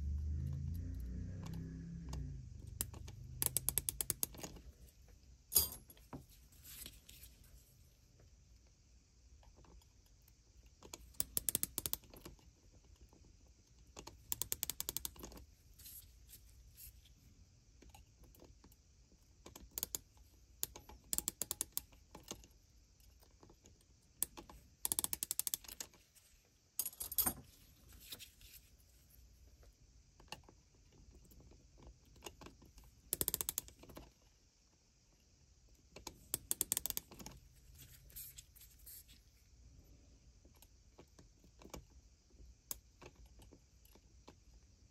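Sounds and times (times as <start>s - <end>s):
micrometer ratchet clicking: 2.6s - 4.5s, 11.1s - 12.1s, 14.3s - 15.3s, 24.2s - 25.8s, 33.1s - 33.7s, 36.3s - 37.2s.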